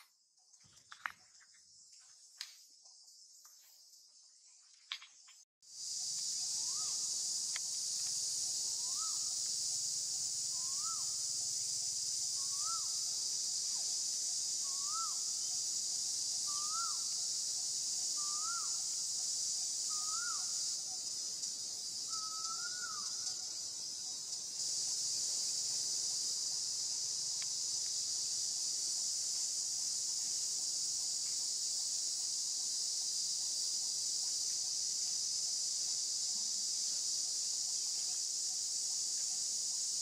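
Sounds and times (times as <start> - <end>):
high-pitched insect drone: 0.3 - 40.0
faint clicks: 7.5 - 8.2.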